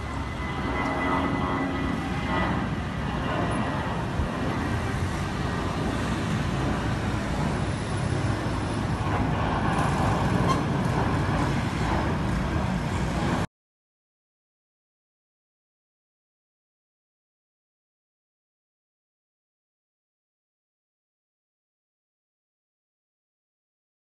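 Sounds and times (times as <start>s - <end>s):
jet airliner rumbling overhead: 0.0s - 13.5s.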